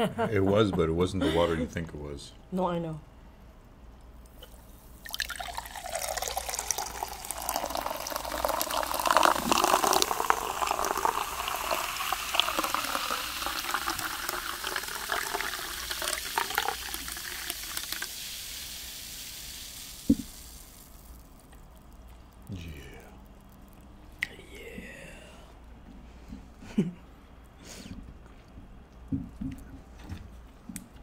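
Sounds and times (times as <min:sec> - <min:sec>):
water pouring into a glass: 0:04.4 - 0:22.4.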